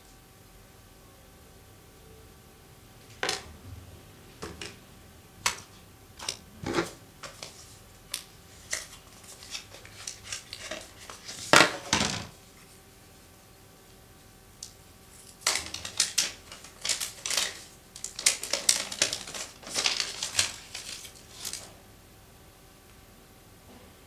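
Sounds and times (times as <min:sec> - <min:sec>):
phone and packaging handled: 0:05.4 - 0:12.3, 0:15.2 - 0:21.7.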